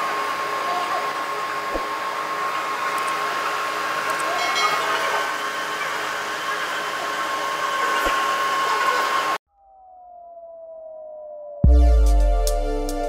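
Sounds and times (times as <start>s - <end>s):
lathe whirring with high whine: 0.0s - 9.4s.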